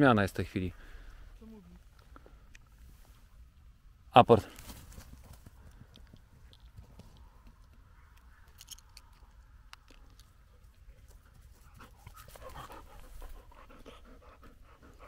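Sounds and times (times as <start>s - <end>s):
dog panting: 10.9s - 15.0s.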